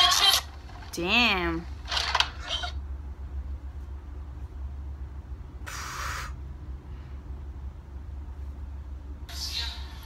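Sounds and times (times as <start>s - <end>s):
steady low hum: 0.0s - 10.0s
short breathy hiss: 5.6s - 6.4s.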